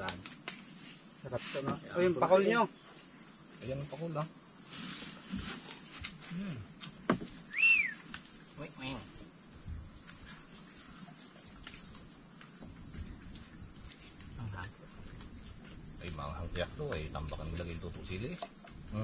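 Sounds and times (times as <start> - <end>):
high-pitched insect chorus: 0.0 - 19.0
short whistled note: 7.5 - 8.0.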